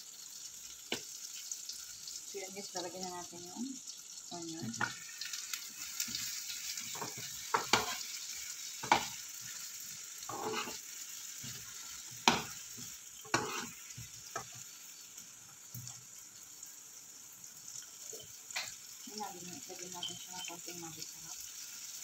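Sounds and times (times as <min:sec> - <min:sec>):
onions sizzling in a frying pan: 0:00.0 - 0:22.0
metal spoon scraping a pan: 0:04.8 - 0:09.6, 0:10.2 - 0:14.7.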